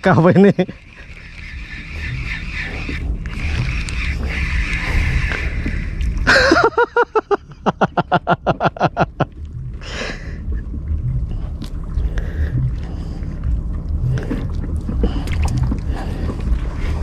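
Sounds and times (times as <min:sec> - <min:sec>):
low rumble: 0:00.0 - 0:17.0
rapid laughter: 0:06.2 - 0:09.3.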